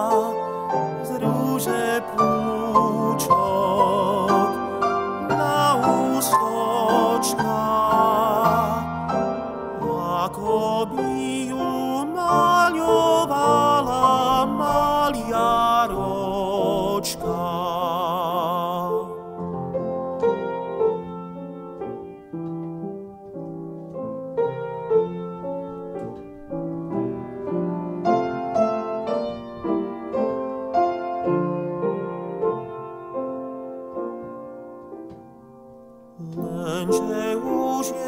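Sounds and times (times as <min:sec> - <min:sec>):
man singing with vibrato: 0:00.0 - 0:19.4, 0:36.2 - 0:38.0
piano playing: 0:00.0 - 0:38.0.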